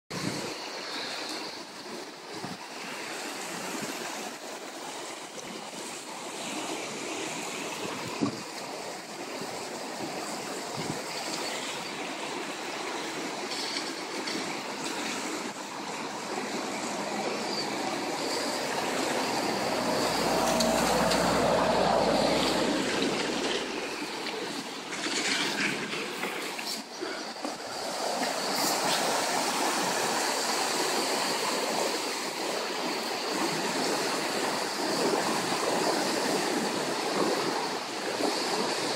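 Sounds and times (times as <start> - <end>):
river water rushing: 0.2 - 38.9
low rumble: 16.6 - 24.4.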